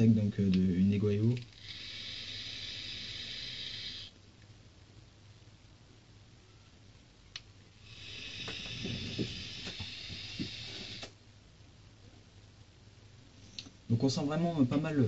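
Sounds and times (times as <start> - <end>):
e-cigarette draw hissing: 7.8 - 11.2.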